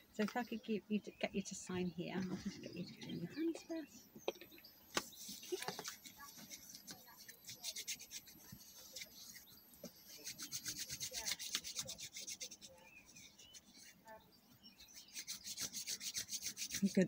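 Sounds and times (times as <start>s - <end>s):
hands rubbing together: 4.9s - 17.0s.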